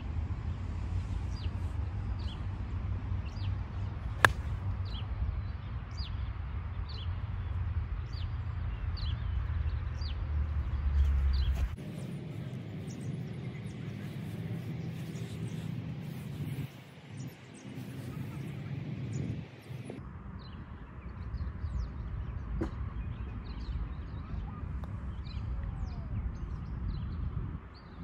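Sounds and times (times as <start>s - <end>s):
golf club striking ball: 4.2s - 4.6s.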